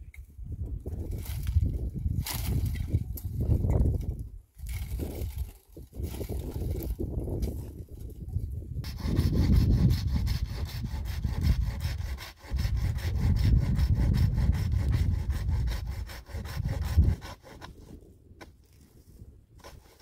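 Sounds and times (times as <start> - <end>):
saw cutting firewood: 8.8 - 18.6, 19.6 - 20.0.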